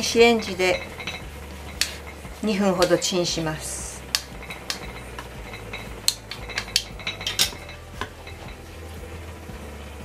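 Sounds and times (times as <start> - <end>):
low hum: 0.0 - 10.0
chopsticks clicking on ceramic bowl: 4.1 - 5.3.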